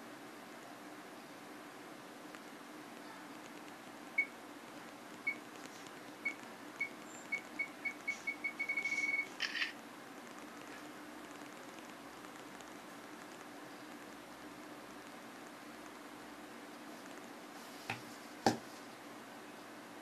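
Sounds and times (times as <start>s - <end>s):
self-timer beeping: 4.2s - 4.4s, 5.2s - 5.5s, 6.2s - 9.4s
camera shutter sound: 8.6s - 9.8s.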